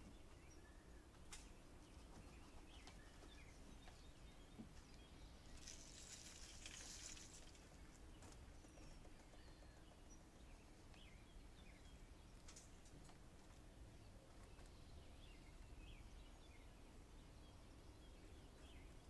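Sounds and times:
peanuts poured onto table: 5.6s - 7.6s.

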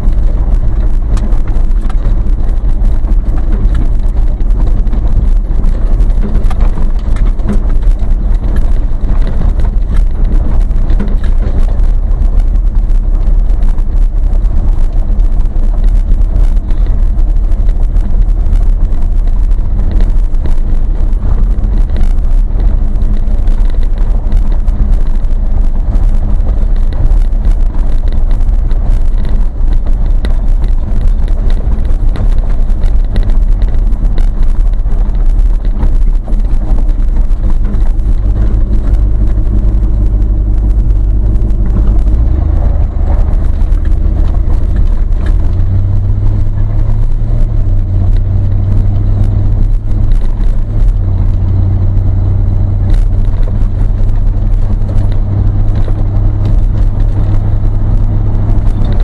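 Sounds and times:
engine and tyres rumbling: 0.0s - 59.0s
gravel crackling under wheels: 0.0s - 59.0s.

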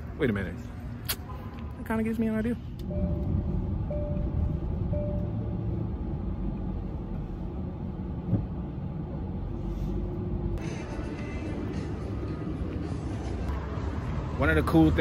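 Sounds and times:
car engine rumble: 0.0s - 15.0s.

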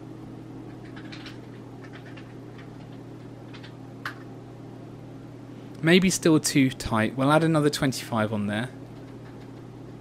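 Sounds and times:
steady low hum: 0.0s - 10.0s
keyboard typing ticks: 9.0s - 9.7s.

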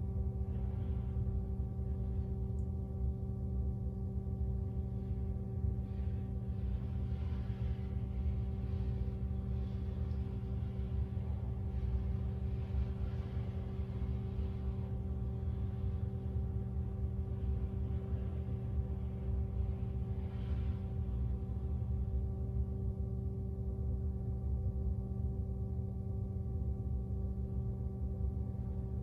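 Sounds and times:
low hum: 0.0s - 29.0s
soft hissy swells: 4.7s - 22.6s.

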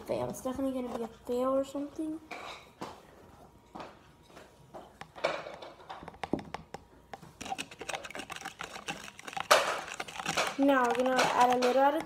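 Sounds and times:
slime stirring clicks: 7.4s - 12.0s.

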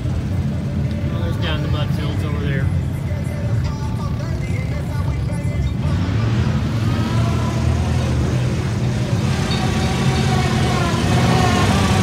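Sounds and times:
truck engine driving past: 5.7s - 12.0s.

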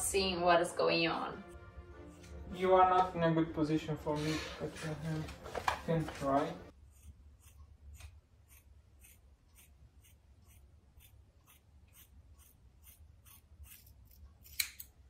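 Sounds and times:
scissors snipping hair: 7.0s - 15.0s.

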